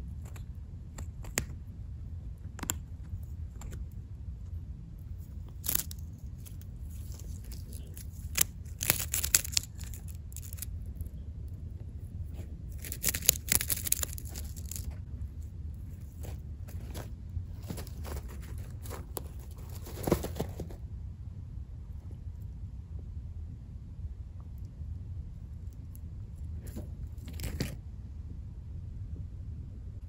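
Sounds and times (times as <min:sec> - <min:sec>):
guinea pig crunching dried grass: 0:00.0 - 0:20.8, 0:25.3 - 0:27.8
steady low hum: 0:00.0 - 0:30.0.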